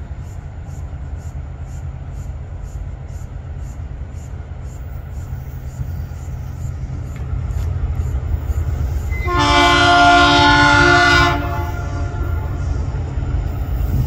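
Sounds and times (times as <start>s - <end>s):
locomotive air horn: 9.1s - 12.6s.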